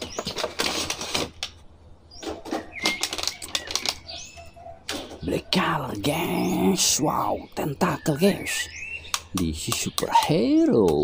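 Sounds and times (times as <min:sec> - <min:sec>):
plastic packaging crackling: 0:00.0 - 0:01.6, 0:02.5 - 0:04.2.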